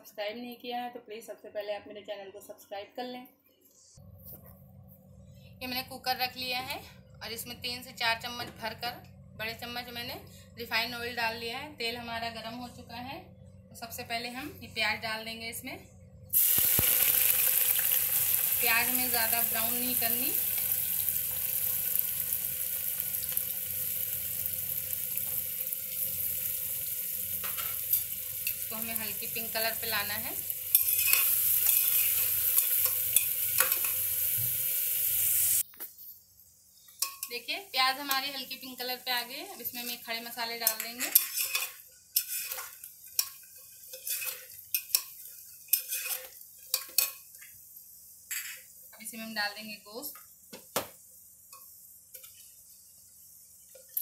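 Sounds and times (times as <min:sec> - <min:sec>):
onions sizzling in oil: 0:16.3 - 0:35.6, 0:36.7 - 0:54.0
spatula scraping pot: 0:40.7 - 0:43.3, 0:43.9 - 0:45.0, 0:45.7 - 0:47.0.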